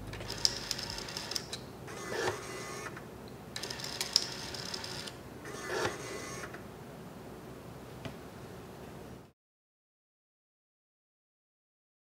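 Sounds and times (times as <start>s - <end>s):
label maker motor whirring: 0.1s - 3.0s.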